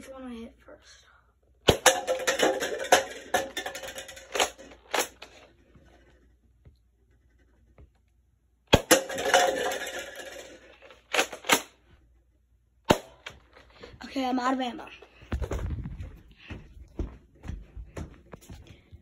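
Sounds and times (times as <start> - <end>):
plastic cups clattering on table: 1.8 - 5.4, 8.8 - 11.6.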